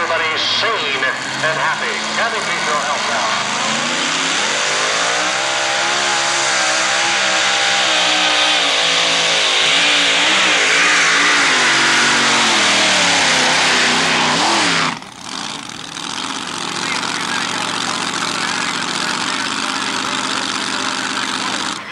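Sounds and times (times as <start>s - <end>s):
truck engine at full throttle: 0.0s - 21.9s.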